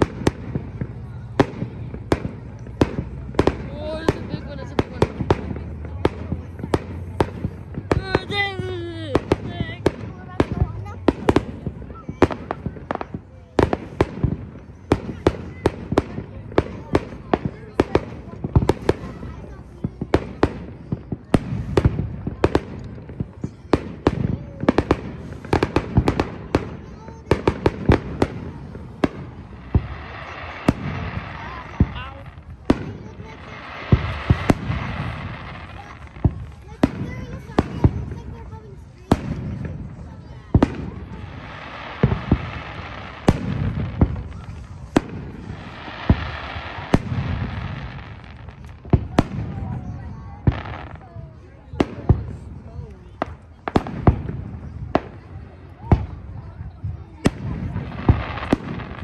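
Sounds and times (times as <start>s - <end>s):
fireworks bursting: 0.0s - 59.0s.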